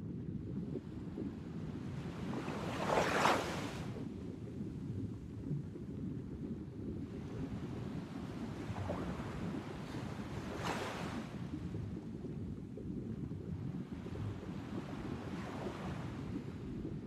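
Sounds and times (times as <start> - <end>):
surf: 2.1 - 4.0, 8.1 - 11.4.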